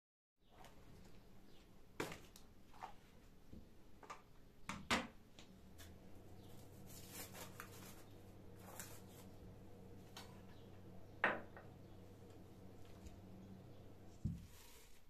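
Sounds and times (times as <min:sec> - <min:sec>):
low steady hum: 0:05.2 - 0:15.0.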